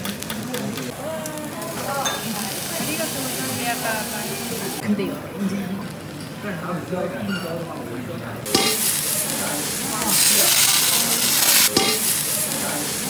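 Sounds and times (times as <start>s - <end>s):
shrimp sizzling on a griddle: 0.2s - 4.8s, 8.4s - 13.0s.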